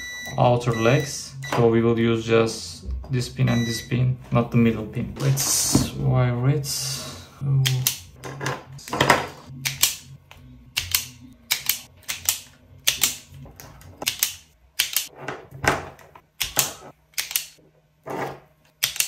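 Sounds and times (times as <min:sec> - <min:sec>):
sharp dry mechanical clicks: 0:18.8 - 0:19.0.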